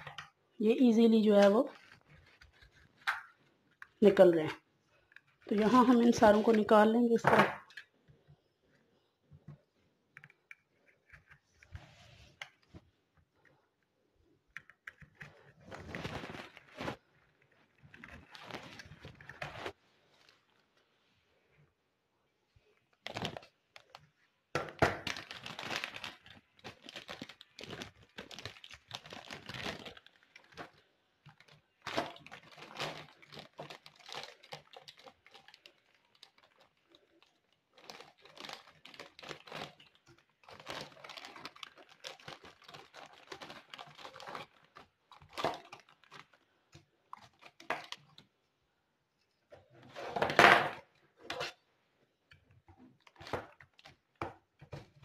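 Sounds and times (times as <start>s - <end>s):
plastic bag crinkling: 0.0s - 7.8s, 15.2s - 20.6s, 22.9s - 24.2s, 25.0s - 48.3s, 52.9s - 55.0s.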